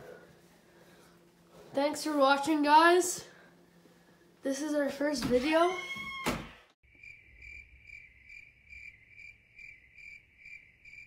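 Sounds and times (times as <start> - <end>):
cricket chirping: 6.9 - 11.0.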